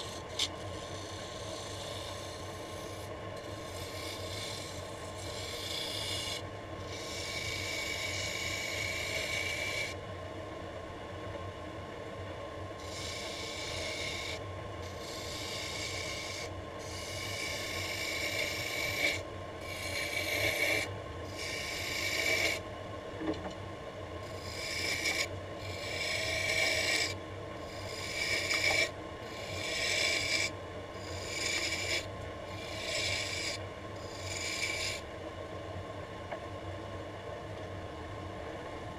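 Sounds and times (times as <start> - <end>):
lathe motor hum: 0.0 - 10.0, 12.7 - 22.6, 24.2 - 35.1
hiss of wood shavings: 12.8 - 22.6.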